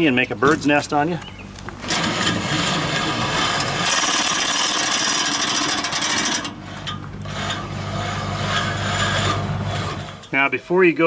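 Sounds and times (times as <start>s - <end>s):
winch drum whirring: 1.6s - 10.4s.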